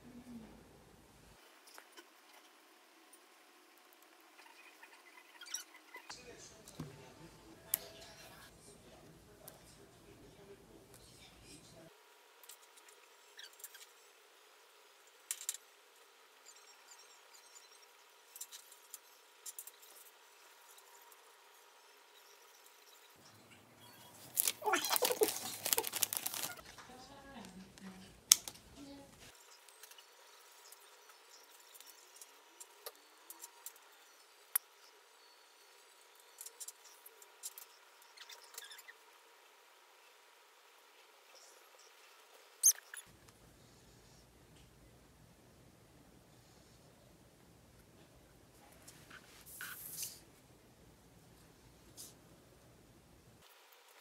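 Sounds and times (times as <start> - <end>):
sticker paper crinkling: 24.1 - 26.8.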